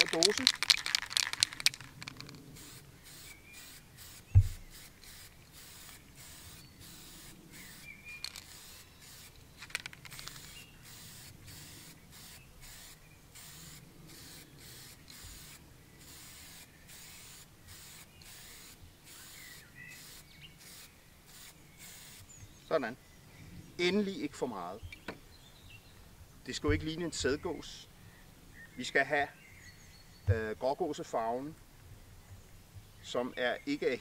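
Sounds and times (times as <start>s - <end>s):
spray can ball rattling: 0.0s - 22.2s
spray can hissing: 0.0s - 22.4s
thump: 4.3s - 4.6s.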